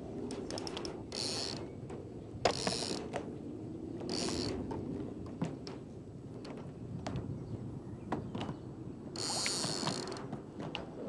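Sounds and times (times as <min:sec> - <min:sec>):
fishing reel cranking: 0:09.2 - 0:10.2.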